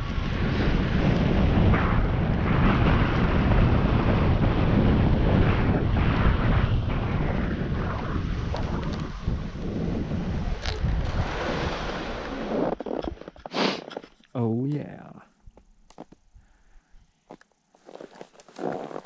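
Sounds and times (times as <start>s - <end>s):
wind buffeting microphone: 0.0s - 13.5s.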